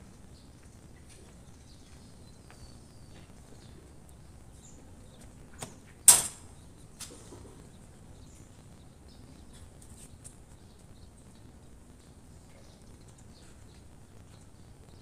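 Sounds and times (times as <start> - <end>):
sharp loud clack: 6.1 - 6.4.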